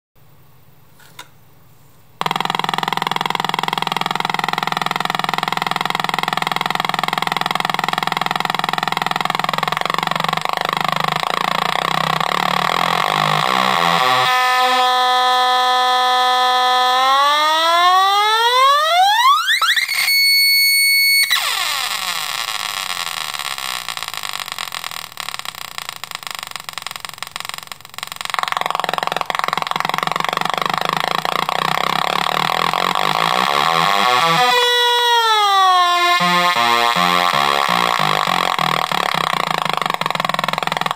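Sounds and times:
synth buzzing and whistling tone: 0:05.8 - 0:40.9.

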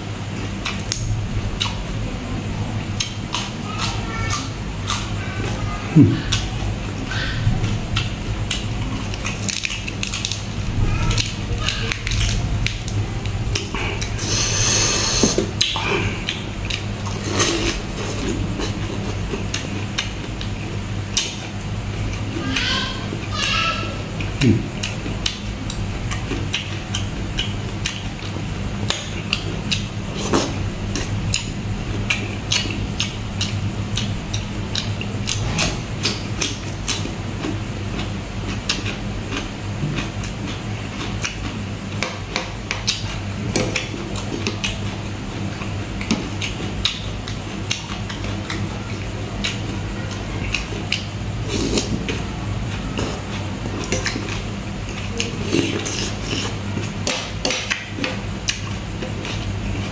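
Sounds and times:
low hum: 0:00.0 - 0:03.8
chewing with wet mouth clicks: 0:00.4 - 0:01.9, 0:02.9 - 0:05.6, 0:06.2 - 0:22.8, 0:24.2 - 0:59.9
slurping broth: 0:14.2 - 0:15.5.

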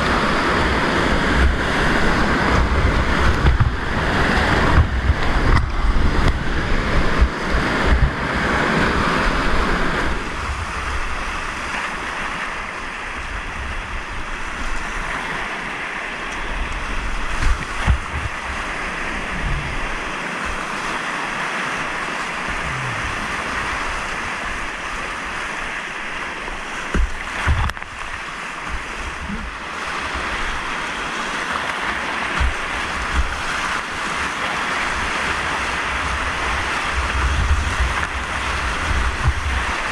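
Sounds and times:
wind buffeting microphone: 0:00.0 - 0:11.7, 0:16.4 - 0:21.0, 0:34.8 - 0:39.9
whitewater rapids rushing: 0:00.0 - 0:39.9.

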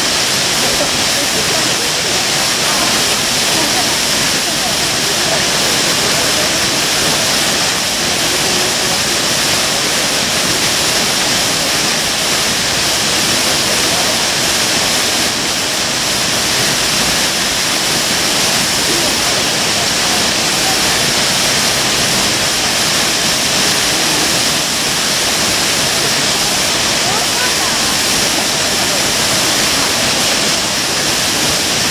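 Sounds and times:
waterfall rushing: 0:00.0 - 0:31.9.

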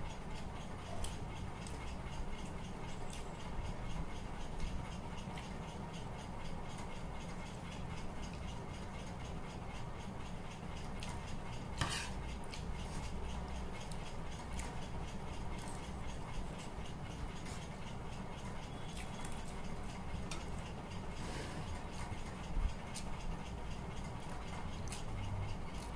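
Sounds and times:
steady low hum: 0:00.0 - 0:25.9.

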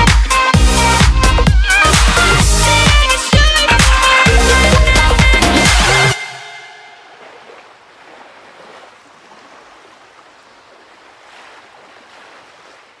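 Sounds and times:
surf washing onto beach: 0:07.1 - 0:13.0.

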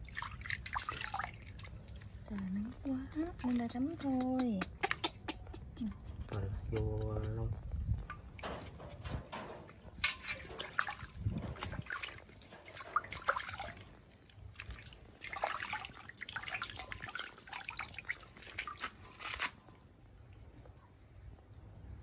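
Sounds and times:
water splashing in metal basin: 0:00.0 - 0:02.1, 0:08.1 - 0:19.7.

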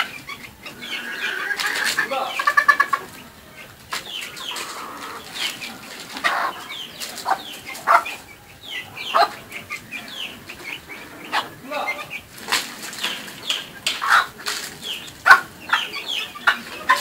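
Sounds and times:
chicks peeping: 0:00.0 - 0:17.0
hens clucking: 0:00.0 - 0:17.0.

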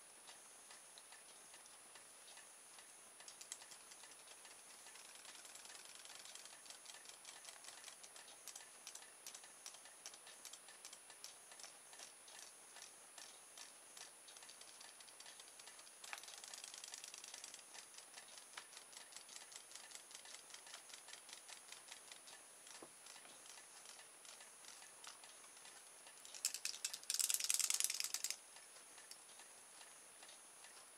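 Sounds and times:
toy fish tail mechanism ticking: 0:00.3 - 0:30.9
fast rattling: 0:03.4 - 0:11.0, 0:14.4 - 0:25.2, 0:26.2 - 0:28.4.

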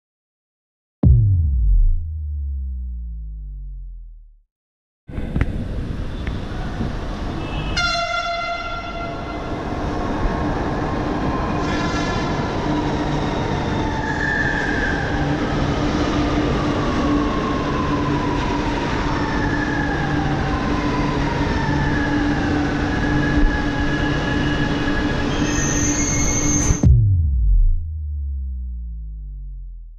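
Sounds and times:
electric train rumbling and whining: 0:05.2 - 0:27.1
train horn blast: 0:07.4 - 0:09.7.

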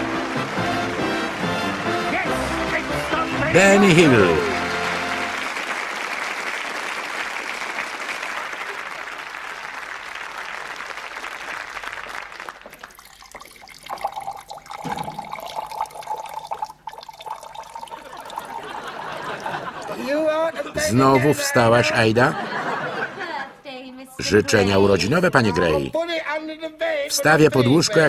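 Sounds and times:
audience applause: 0:00.0 - 0:13.4, 0:17.1 - 0:20.2
water pouring into a glass: 0:12.6 - 0:20.0.

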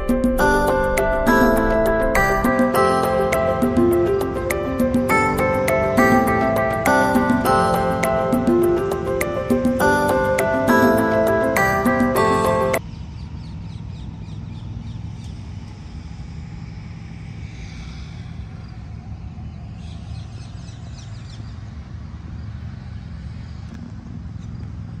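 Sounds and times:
background music: 0:00.0 - 0:12.8
distant road traffic: 0:00.0 - 0:25.0
low street rumble: 0:00.0 - 0:25.0.

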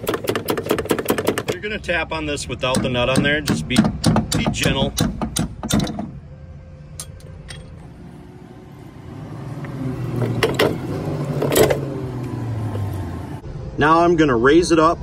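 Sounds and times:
metal clunks: 0:00.0 - 0:01.7, 0:02.6 - 0:06.2, 0:10.1 - 0:11.9
low engine hum: 0:06.1 - 0:13.8.

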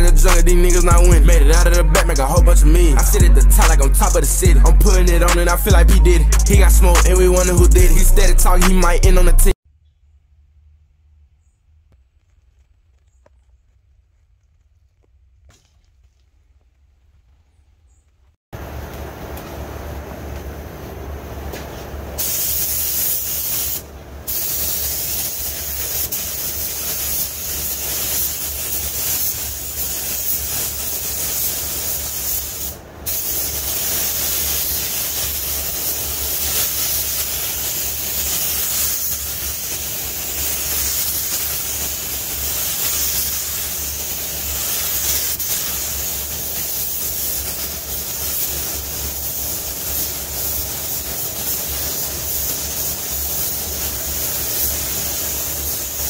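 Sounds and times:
paint spray gun hissing: 0:00.0 - 0:09.0, 0:22.2 - 0:56.0.

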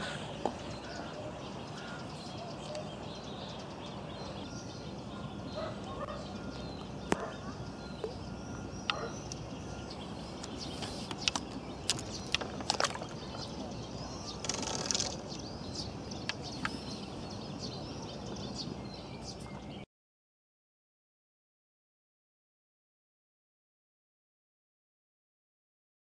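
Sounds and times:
pond ambience: 0:00.0 - 0:19.8
distant animal calls: 0:04.3 - 0:11.2
sharp clicks: 0:14.3 - 0:15.3.

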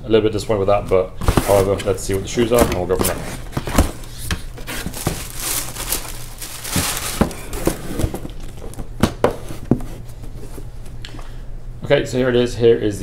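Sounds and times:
wrapping paper rustling: 0:01.2 - 0:09.0.

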